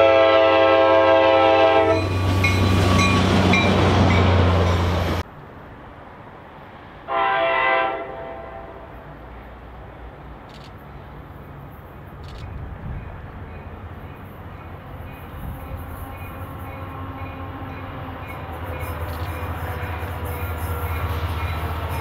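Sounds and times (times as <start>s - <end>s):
distant train air horn: 0.0s - 2.2s, 7.1s - 9.0s
diesel locomotive engine rumble: 0.0s - 22.0s.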